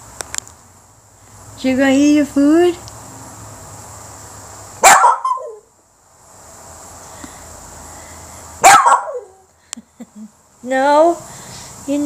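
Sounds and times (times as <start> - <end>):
dog barking: 4.8 - 5.6, 8.6 - 9.4.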